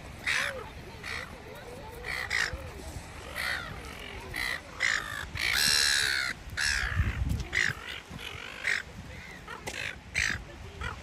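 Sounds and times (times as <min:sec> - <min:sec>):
gulls calling harshly: 0:00.2 - 0:11.0.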